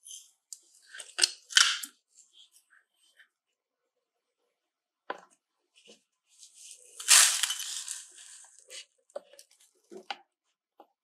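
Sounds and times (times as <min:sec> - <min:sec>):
grit pouring from metal tray: 0:07.0 - 0:08.6.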